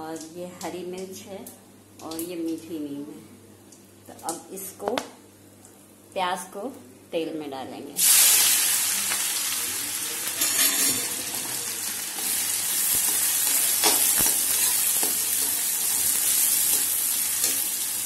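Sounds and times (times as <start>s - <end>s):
onions sizzling in hot oil: 8.0s - 18.0s.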